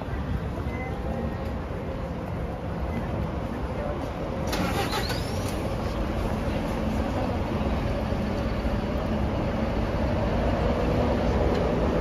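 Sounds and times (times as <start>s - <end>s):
city vehicle rumble: 0.0s - 12.0s
engine hum: 0.0s - 12.0s.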